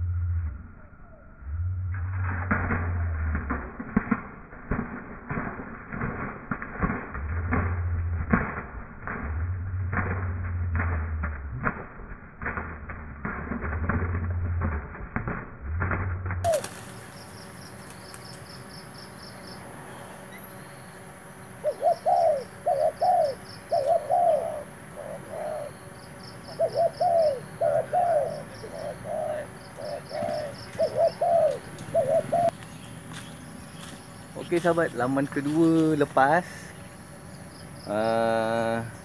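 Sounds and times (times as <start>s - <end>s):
dove cooing: 16.4s - 17.2s, 21.6s - 32.6s.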